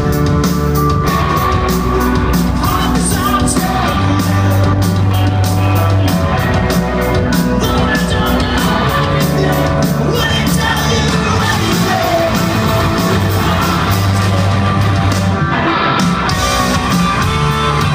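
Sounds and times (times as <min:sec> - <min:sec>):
bass guitar: 0:00.0 - 0:17.9
drums: 0:00.0 - 0:17.9
electric guitar: 0:00.0 - 0:17.9
person singing: 0:00.9 - 0:05.9, 0:07.2 - 0:14.9.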